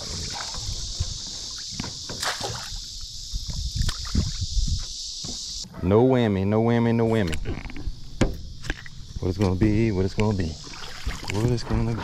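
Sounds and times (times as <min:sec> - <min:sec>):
water splashing and sloshing: 0:00.0 - 0:04.4, 0:08.3 - 0:12.0
high insect drone: 0:00.0 - 0:12.0.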